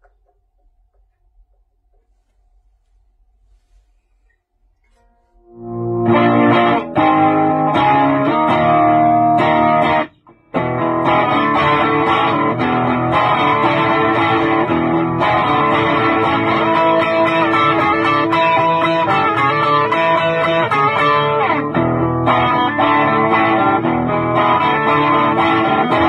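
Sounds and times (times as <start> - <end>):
electric guitar chords: 5.4 - 26.0.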